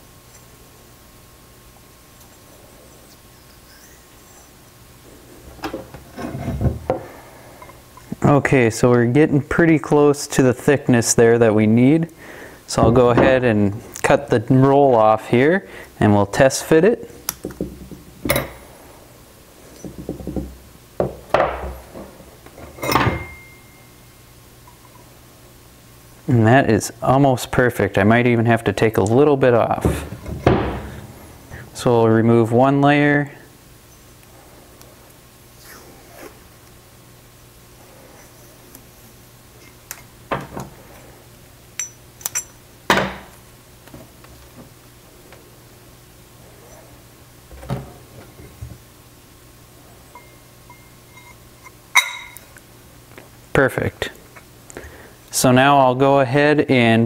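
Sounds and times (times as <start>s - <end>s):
objects knocking on wooden workbench: 19.8s - 22.1s
metallic clinks: 22.8s - 24.0s, 41.8s - 42.6s, 50.2s - 52.5s
metal ringing knock: 52.0s - 52.4s.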